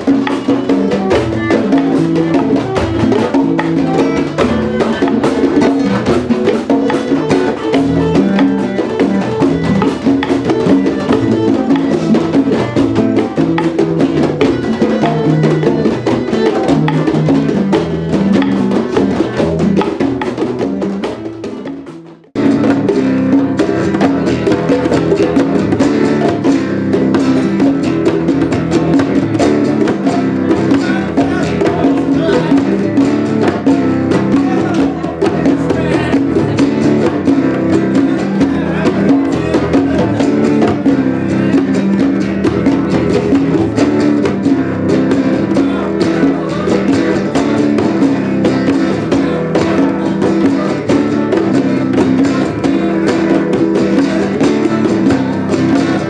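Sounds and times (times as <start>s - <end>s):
hand drums playing: 0.0s - 56.0s
strummed acoustic guitar: 0.0s - 56.0s.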